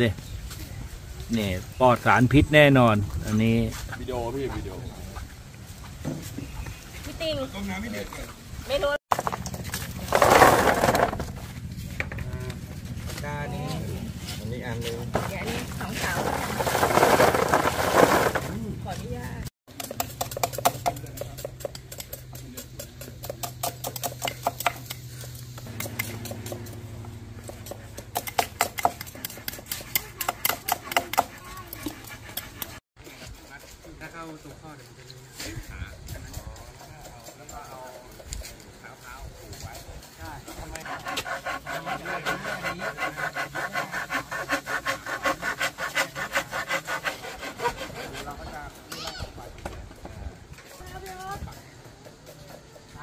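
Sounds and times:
hand saw cutting bamboo: 19.7 - 32.8, 40.4 - 49.1.

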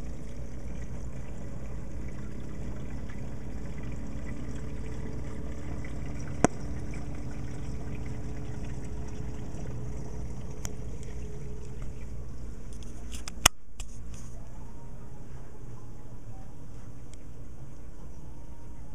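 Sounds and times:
water trickling: 0.0 - 13.5
aquarium low hum: 0.0 - 18.9.

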